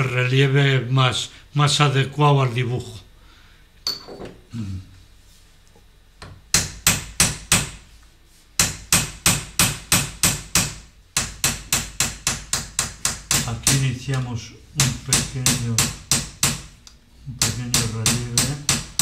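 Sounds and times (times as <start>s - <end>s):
hammer tapping metal punch: 8.6s - 14.2s, 14.8s - 16.7s, 17.3s - 19.0s.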